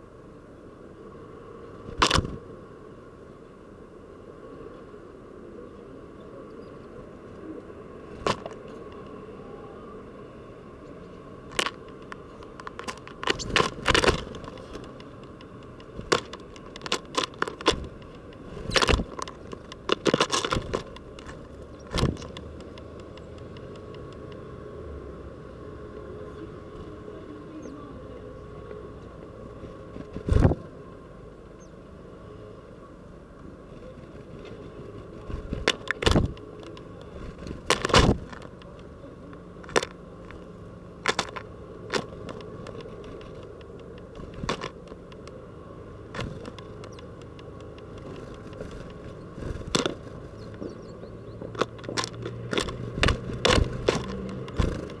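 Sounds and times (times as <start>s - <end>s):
low background noise: 0.0s - 55.0s
birds tapping on feeder: 11.4s - 24.5s, 35.0s - 38.8s, 39.4s - 55.0s.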